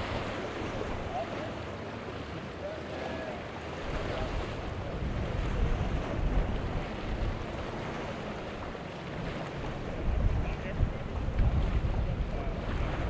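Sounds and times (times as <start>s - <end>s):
waves breaking against rocks: 0.0s - 13.0s
wind buffeting the microphone: 3.8s - 13.0s.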